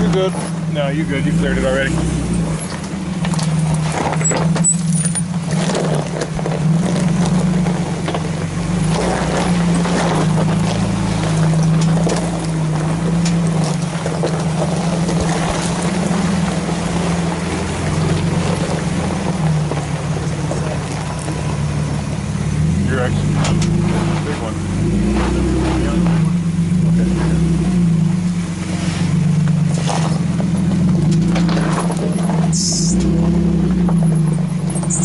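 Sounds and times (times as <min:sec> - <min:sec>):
truck engine running at low revs: 0:00.0 - 0:35.0
tyres crunching on stones: 0:00.0 - 0:35.0.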